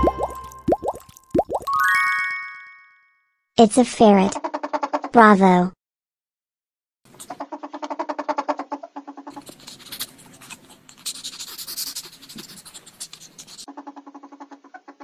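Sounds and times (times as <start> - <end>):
ferrets dooking chatter: 4.3 - 5.2, 7.1 - 15.0.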